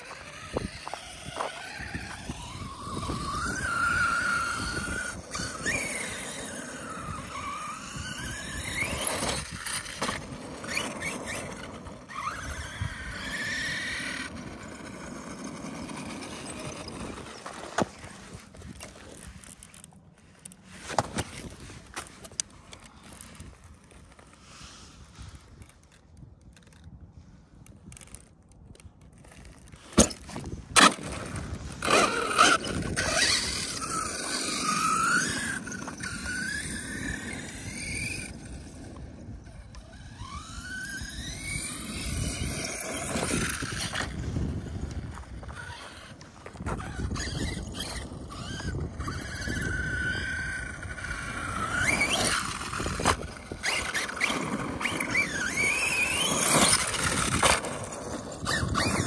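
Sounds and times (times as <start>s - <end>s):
rc truck motor whining: 0.0s - 59.0s
tyres rushing on loose dirt: 41.2s - 59.0s.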